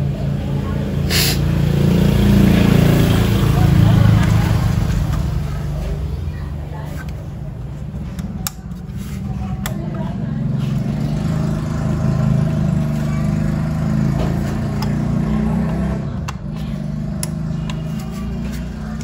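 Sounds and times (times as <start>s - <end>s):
low engine rumble: 0.0s - 19.0s
sharp clicks of handling: 8.1s - 8.9s.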